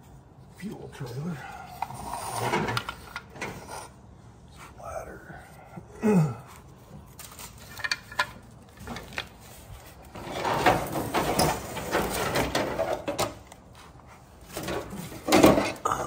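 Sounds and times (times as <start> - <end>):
plastic parts clicking and knocking: 7.2 - 9.4.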